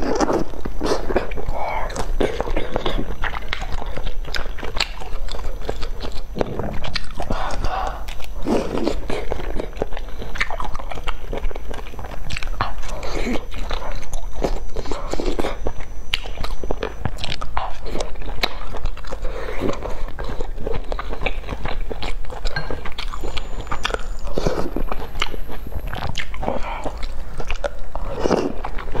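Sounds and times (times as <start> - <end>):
chewing and biting food: 0.0 - 29.0.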